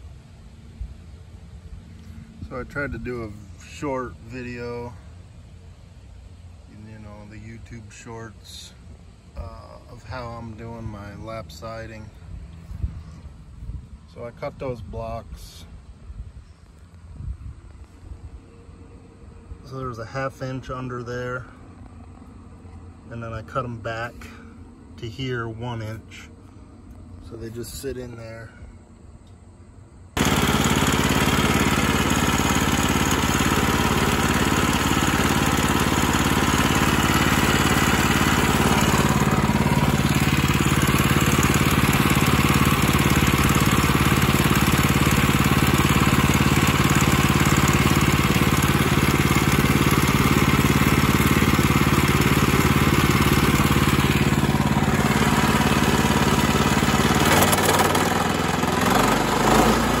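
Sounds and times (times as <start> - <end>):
small gas engine running: 30.1 - 60.0.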